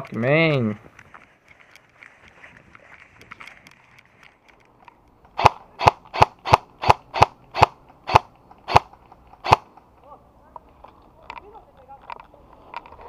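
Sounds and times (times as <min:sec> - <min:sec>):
airsoft gun shots: 0:05.4 - 0:09.7.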